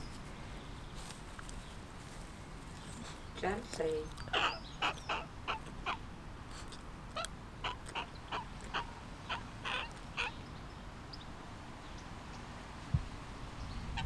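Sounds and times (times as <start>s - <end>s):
crow fledgling calling: 4.1s - 6.1s, 7.1s - 10.6s.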